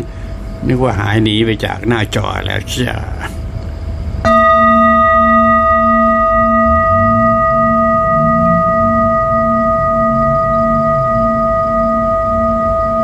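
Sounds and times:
metal singing bowl ringing: 4.2s - 13.0s.

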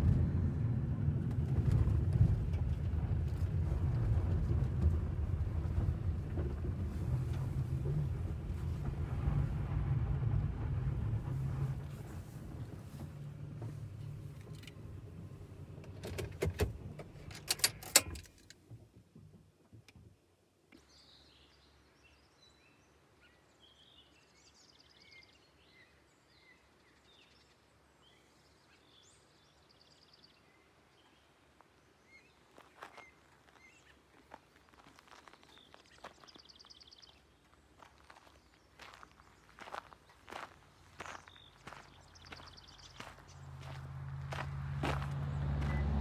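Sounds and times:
low rumble: 0.0s - 16.0s, 40.9s - 46.0s
small birds chirping: 20.8s - 46.0s.

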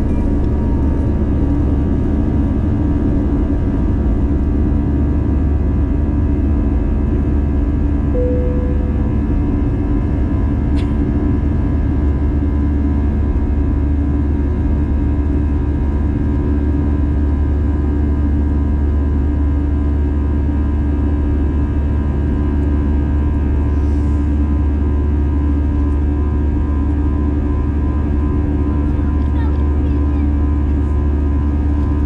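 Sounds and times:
jet engine rumble: 0.0s - 17.3s
humming tones: 8.1s - 12.6s.

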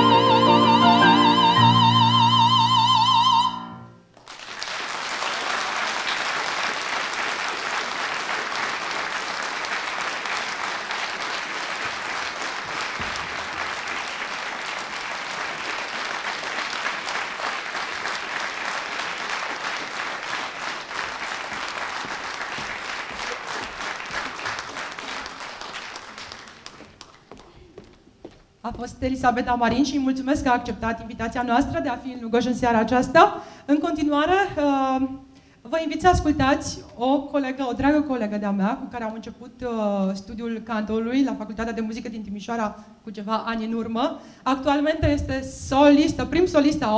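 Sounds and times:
audience applause: 4.1s - 27.5s.

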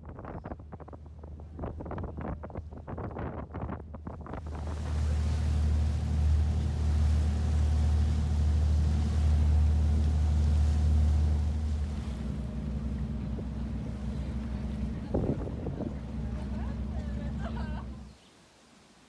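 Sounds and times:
boat engine hum: 0.0s - 18.2s
wind and water rushing: 3.8s - 19.0s.

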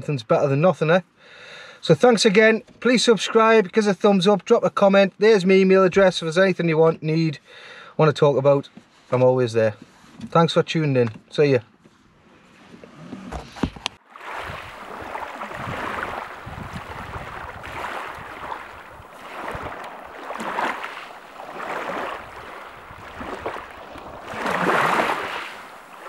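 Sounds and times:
small waves washing onto beach: 14.0s - 26.0s.

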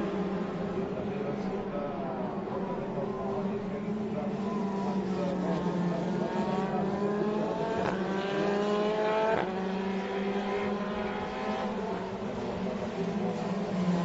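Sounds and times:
race car engines accelerating: 0.0s - 14.0s.

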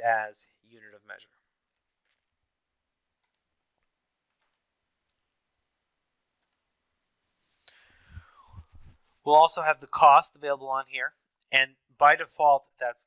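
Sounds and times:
computer mouse clicks: 3.2s - 5.2s, 6.4s - 6.7s.

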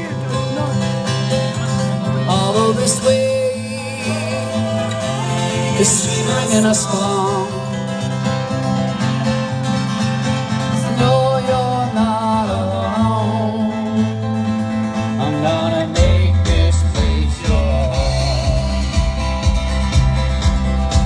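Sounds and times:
bass line: 0.0s - 21.0s
guitar: 0.0s - 21.0s
person singing: 1.6s - 7.9s, 10.6s - 14.2s, 15.2s - 19.5s
drum beats: 16.0s - 21.0s.

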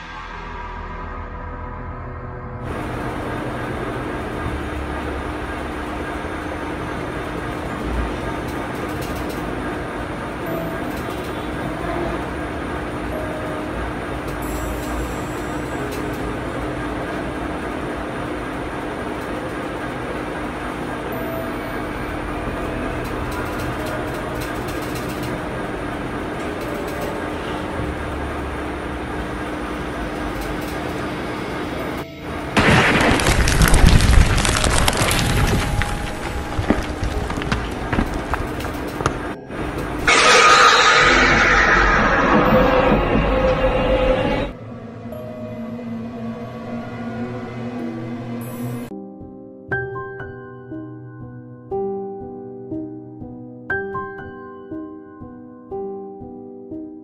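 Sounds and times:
harsh rumbling static drone: 2.6s - 48.9s.

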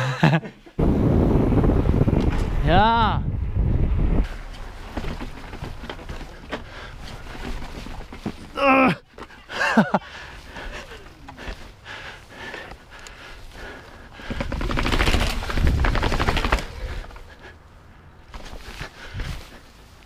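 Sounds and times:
low rumble: 0.8s - 4.9s
bike freewheel hub clicking: 14.2s - 17.2s.

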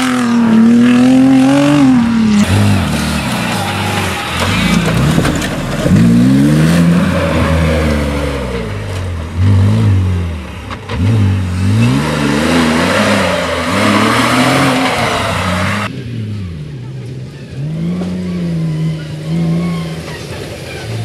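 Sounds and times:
engine revving hard: 11.0s - 15.9s.

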